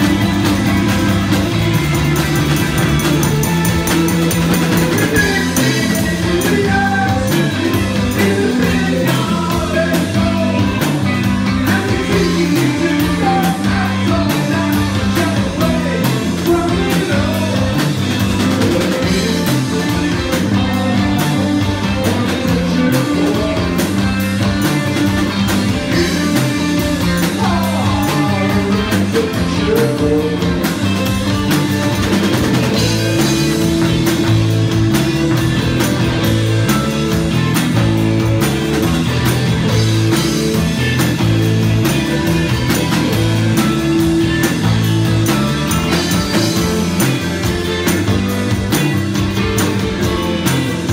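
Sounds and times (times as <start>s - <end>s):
drum kit: 0.0s - 50.9s
electric guitar: 0.0s - 50.9s
man singing: 4.8s - 24.2s, 25.8s - 31.0s.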